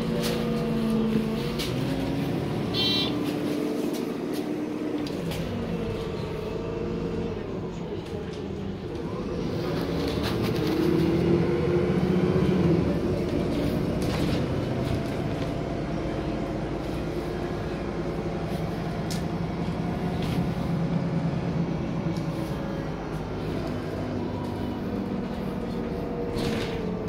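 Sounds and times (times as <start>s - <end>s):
bus engine droning: 0.0s - 27.0s.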